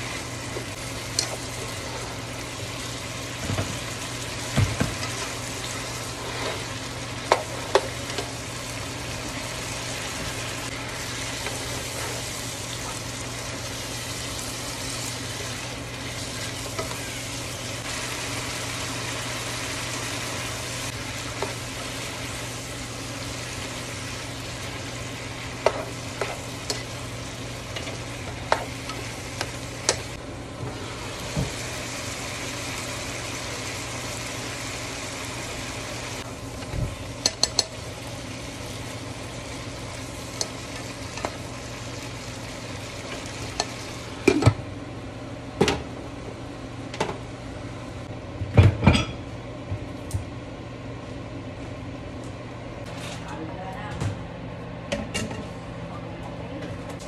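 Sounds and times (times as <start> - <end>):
food sizzling in a pan: 0.0 - 44.4.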